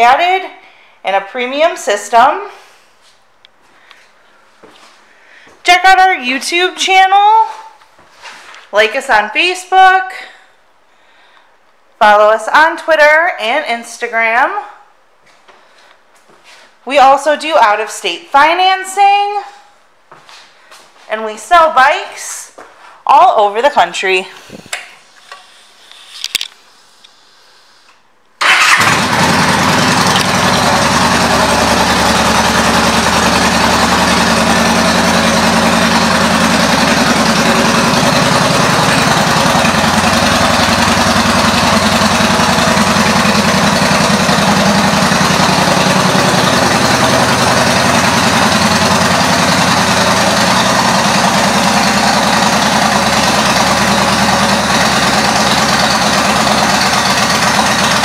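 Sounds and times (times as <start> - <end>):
motorcycle engine starting and idling: 28.4 - 58.0.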